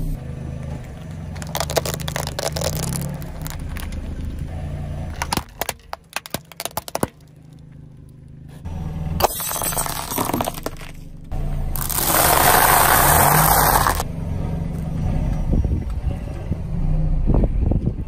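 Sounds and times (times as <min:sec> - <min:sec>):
low car engine hum: 0:00.0 - 0:18.0
tyre crushing objects on asphalt: 0:00.8 - 0:04.5, 0:05.1 - 0:08.3, 0:09.2 - 0:11.0, 0:11.8 - 0:14.0.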